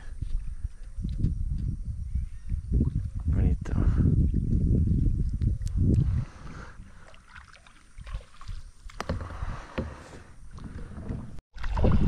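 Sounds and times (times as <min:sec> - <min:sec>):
water splashing: 0:06.9 - 0:09.4, 0:10.6 - 0:12.0.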